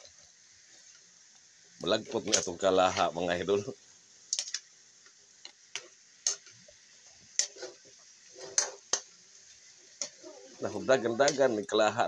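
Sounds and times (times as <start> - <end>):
meat sizzling: 0.0 - 12.0
metal ladle scraping wok: 7.4 - 9.0.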